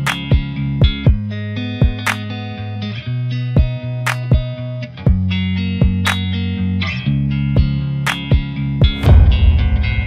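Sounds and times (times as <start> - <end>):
rock music with electric guitar: 0.0 - 10.0
sharp drum hits: 8.8 - 10.0
loud low rumble: 8.9 - 10.0.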